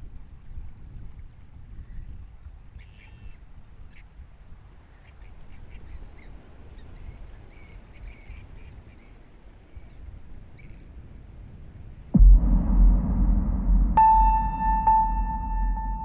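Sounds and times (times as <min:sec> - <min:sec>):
steady low rumble: 0:12.1 - 0:16.0.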